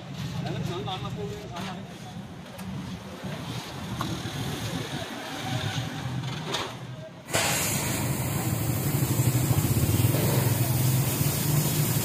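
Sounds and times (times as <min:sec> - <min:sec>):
gas cutting torch hissing: 0:07.3 - 0:12.0.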